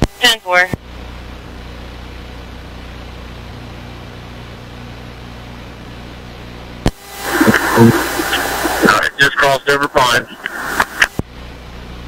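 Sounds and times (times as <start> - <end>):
aircraft cabin hiss and hum: 0.0 - 12.0
sharp radio click: 10.2 - 11.3.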